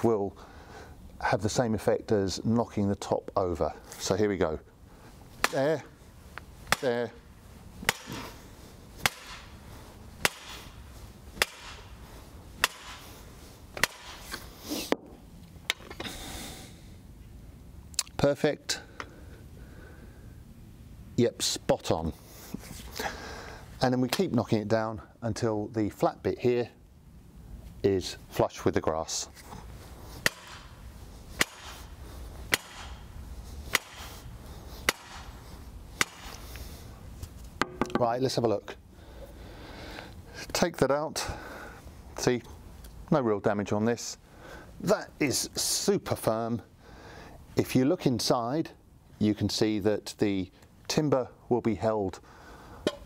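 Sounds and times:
sledgehammer striking wood: 0:05.4 - 0:05.7, 0:06.7 - 0:07.1, 0:07.8 - 0:08.4, 0:09.0 - 0:09.5, 0:10.2 - 0:10.8, 0:11.4 - 0:11.9, 0:12.6 - 0:13.0, 0:13.8 - 0:14.2, 0:30.2 - 0:30.7, 0:31.4 - 0:31.9, 0:32.5 - 0:33.1, 0:33.7 - 0:34.1, 0:34.9 - 0:35.4, 0:36.0 - 0:36.4, 0:37.6 - 0:38.0.

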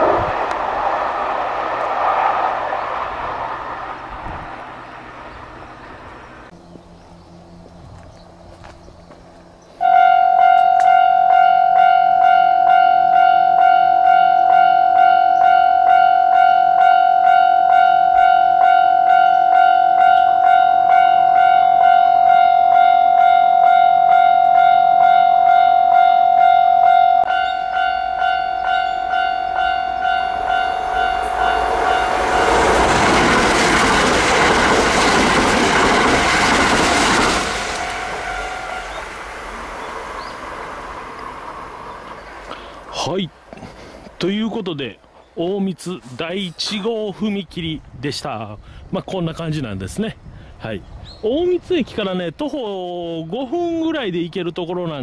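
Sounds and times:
train wheels rumbling on rails: 0:00.0 - 0:09.6, 0:27.2 - 0:45.2
level crossing alarm ringing: 0:09.8 - 0:32.9.

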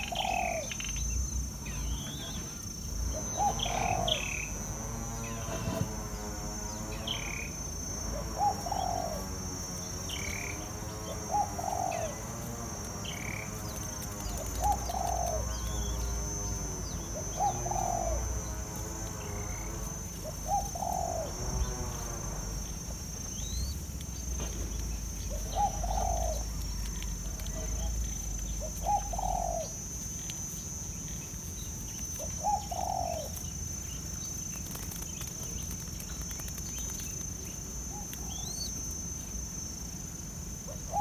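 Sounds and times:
dove cooing: 0:00.0 - 0:00.9, 0:01.8 - 0:05.9, 0:07.0 - 0:18.5, 0:19.2 - 0:22.7, 0:25.2 - 0:29.8, 0:32.1 - 0:33.4, 0:40.7 - 0:41.0
high-pitched insect drone: 0:00.0 - 0:41.0
small birds chirping: 0:00.0 - 0:41.0.

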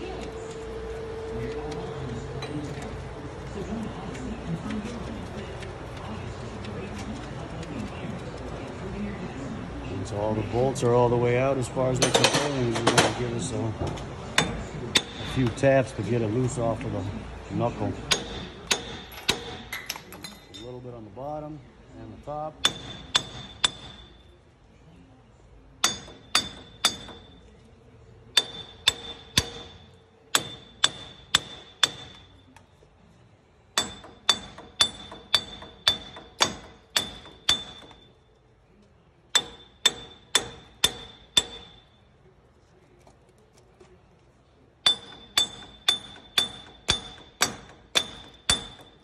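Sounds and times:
hammer striking metal hub: 0:14.4 - 0:15.6, 0:18.1 - 0:20.8, 0:22.6 - 0:24.2, 0:25.8 - 0:27.5, 0:28.3 - 0:32.5, 0:33.8 - 0:38.1, 0:39.3 - 0:42.0, 0:44.8 - 0:49.0.

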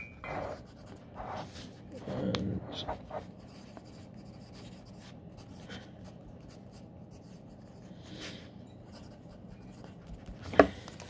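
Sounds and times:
steady low hum: 0:00.0 - 0:11.0
pen scribbling on paper: 0:00.3 - 0:02.0, 0:02.6 - 0:07.9, 0:08.9 - 0:10.6.

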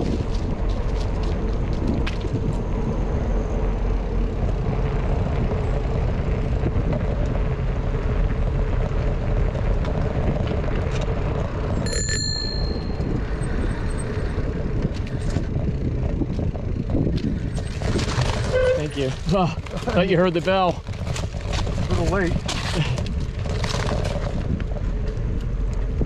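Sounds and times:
low rumble of riding: 0:00.0 - 0:26.0
bicycle bell ringing: 0:11.8 - 0:13.9.

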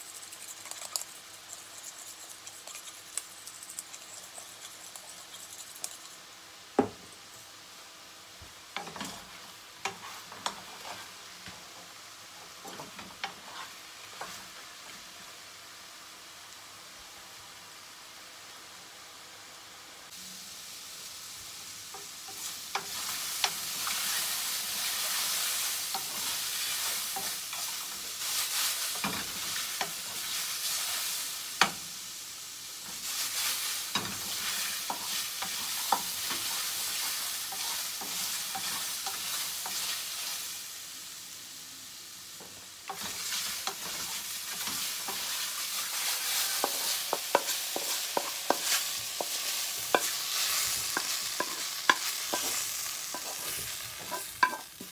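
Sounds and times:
mushrooms sizzling in a frying pan: 0:00.0 - 0:54.9
wooden spatula knocking on pan: 0:06.8 - 0:07.0.

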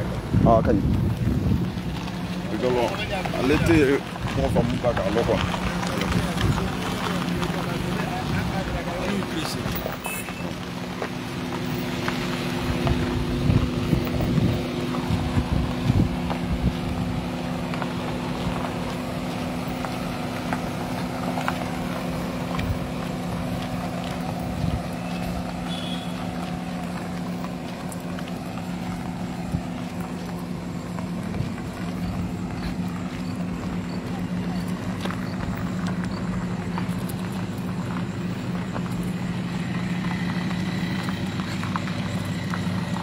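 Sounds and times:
wind buffeting microphone: 0:00.0 - 0:02.4, 0:12.6 - 0:17.4
car engine and road drone: 0:00.0 - 0:43.0.

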